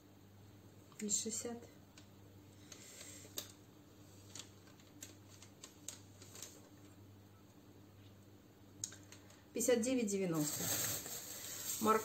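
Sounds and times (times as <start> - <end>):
paper receipt crinkling: 4.2 - 6.7, 10.4 - 12.0.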